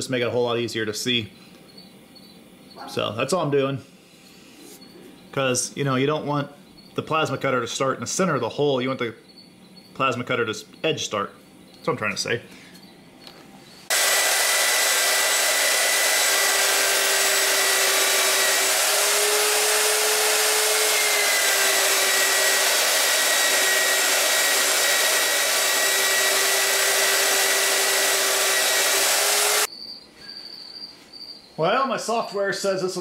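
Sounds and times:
drill motor whine: 0:13.8 - 0:29.7
drill grinding into steel: 0:13.9 - 0:29.7.

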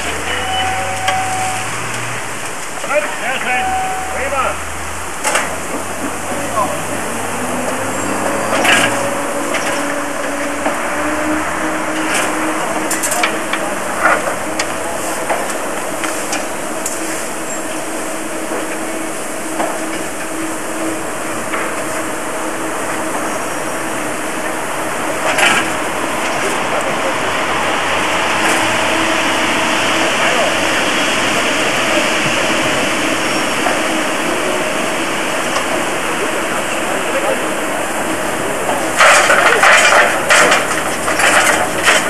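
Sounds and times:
steady whine: 0:00.0 - 0:42.0
coal and metal clanks: 0:08.3 - 0:10.0, 0:11.9 - 0:17.0, 0:38.7 - 0:42.0.

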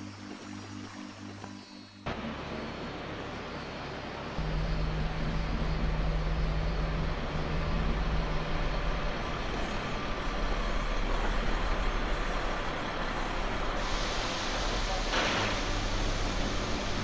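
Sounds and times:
truck engine humming: 0:04.1 - 0:15.1.

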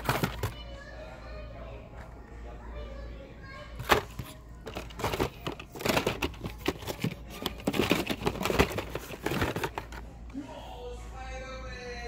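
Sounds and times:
toy car packages clattering: 0:00.0 - 0:00.6, 0:03.8 - 0:10.0.

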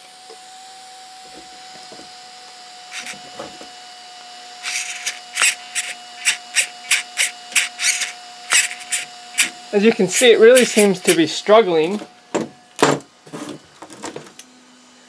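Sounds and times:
steering servo buzzing: 0:01.2 - 0:12.1
faint steady whine: 0:01.2 - 0:12.8.

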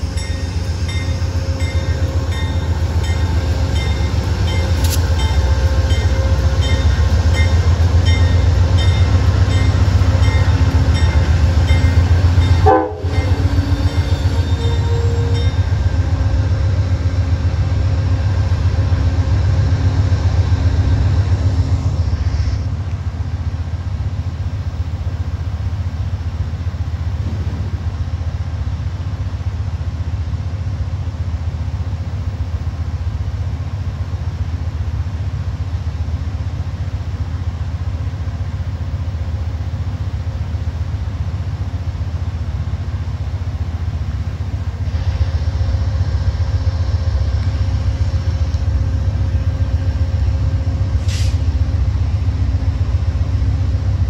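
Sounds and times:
diesel locomotive rumbling: 0:00.0 - 0:54.0.

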